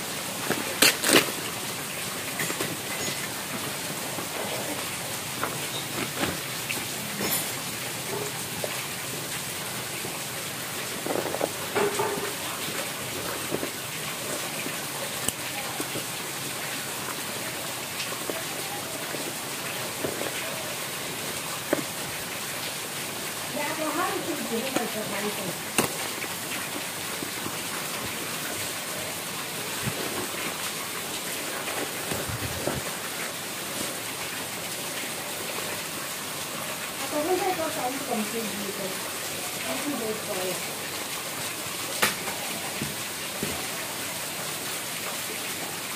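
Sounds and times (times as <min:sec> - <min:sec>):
plastic wrapping crinkling: 0:00.2 - 0:07.1, 0:08.5 - 0:22.4, 0:23.8 - 0:34.0.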